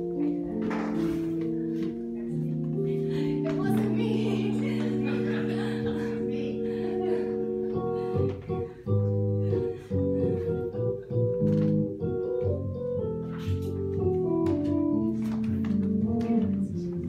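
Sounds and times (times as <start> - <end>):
instrumental chords: 0.0 - 17.0.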